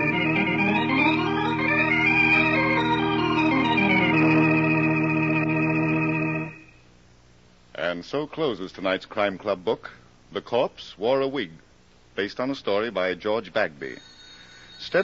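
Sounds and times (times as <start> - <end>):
organ playing sustained chords: 0.0 - 6.8.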